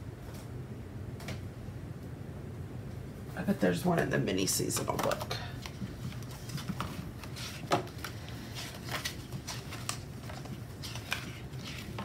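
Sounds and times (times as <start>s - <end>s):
paper pages rustling: 4.8s - 12.0s.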